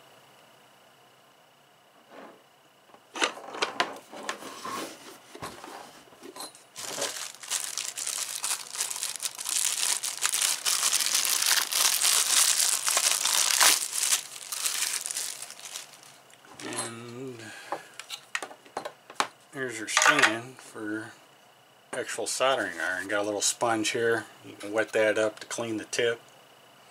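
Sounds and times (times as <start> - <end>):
plastic wrapping crinkling: 6.8 - 16.7.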